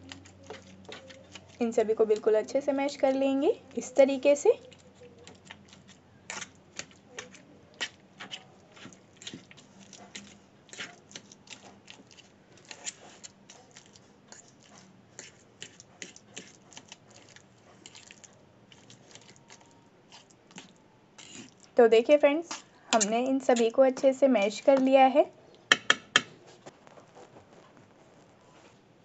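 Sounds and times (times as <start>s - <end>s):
metal fork scraping steel bowl: 21.2s - 21.6s.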